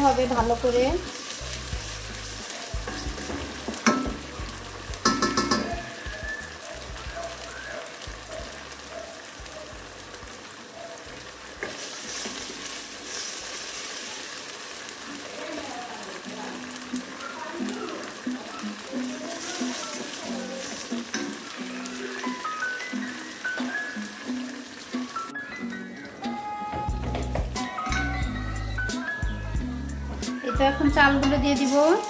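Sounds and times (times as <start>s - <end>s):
wooden spoon stirring in pot: 0.0s - 9.5s, 10.4s - 17.3s
onions sizzling in hot oil: 0.0s - 32.0s.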